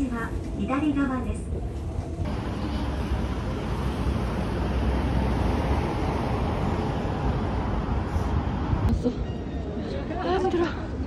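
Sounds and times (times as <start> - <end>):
road traffic passing: 1.8 - 9.8.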